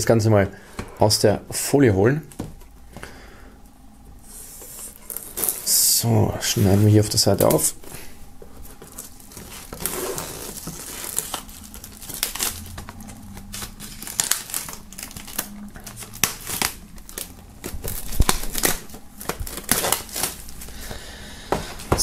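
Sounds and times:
plastic film crinkling and tearing: 4.9s - 5.9s, 8.8s - 20.9s
plastic film snapping: 8.9s - 20.7s.

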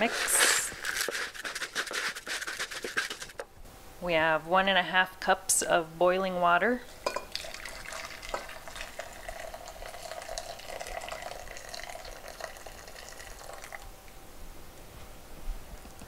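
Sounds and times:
boiling water pouring into a cup: 7.1s - 13.9s.

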